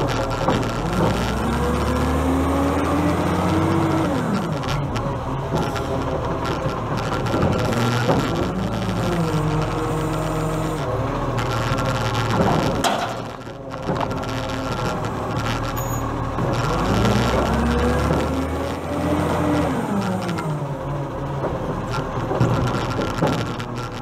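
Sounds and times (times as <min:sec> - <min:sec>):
garbage truck diesel engine: 0:00.0 - 0:24.0.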